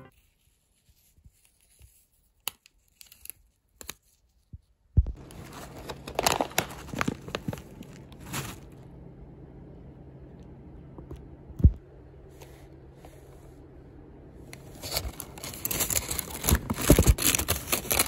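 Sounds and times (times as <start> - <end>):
plastic film crinkling and tearing: 5.2 - 8.8, 14.6 - 18.0.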